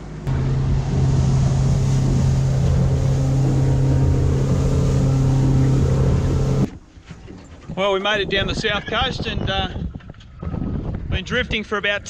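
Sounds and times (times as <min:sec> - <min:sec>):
water and wind hiss: 0:00.0 - 0:06.7
motorboat engine humming: 0:00.0 - 0:07.6.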